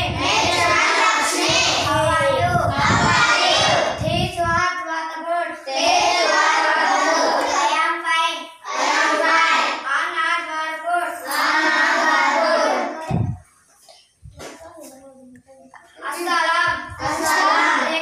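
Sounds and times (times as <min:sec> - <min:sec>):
children singing in unison: 0:00.0 - 0:04.0, 0:05.7 - 0:07.8, 0:08.6 - 0:10.0, 0:11.2 - 0:13.2, 0:16.9 - 0:18.0.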